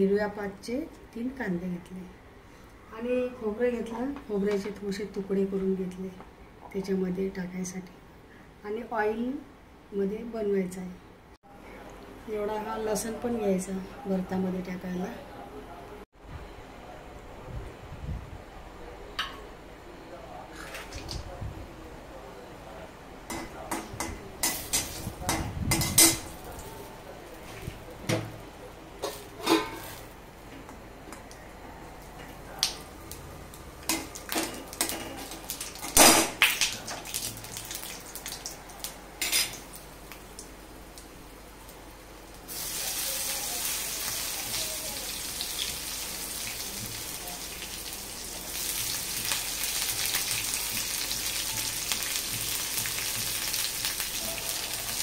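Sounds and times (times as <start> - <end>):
food sizzling in oil: 24.4 - 27.4, 29.0 - 30.2, 33.0 - 55.0
metal spatula scraping a pan: 29.0 - 30.0.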